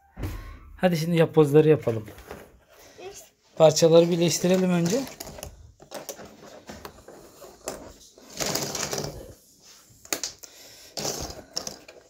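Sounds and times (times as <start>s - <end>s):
puzzle pieces clicking on table: 7.6s - 9.4s, 10.1s - 12.0s.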